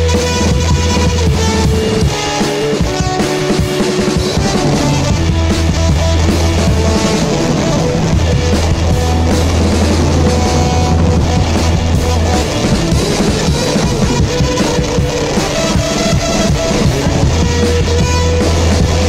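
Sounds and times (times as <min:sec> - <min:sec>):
steady drum beat: 0:00.0 - 0:19.0
held low bass line: 0:04.2 - 0:19.0.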